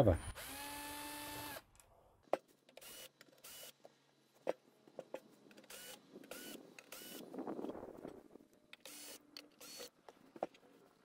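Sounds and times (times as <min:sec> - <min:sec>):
cordless drill running: 0:00.2 - 0:01.7, 0:02.8 - 0:03.8, 0:05.6 - 0:07.4, 0:08.8 - 0:10.0.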